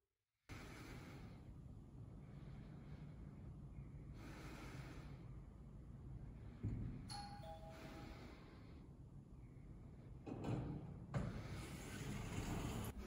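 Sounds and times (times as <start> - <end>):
elevator two-tone chime: 7.1 - 8.0
elevator doors sliding open: 11.6 - 13.0.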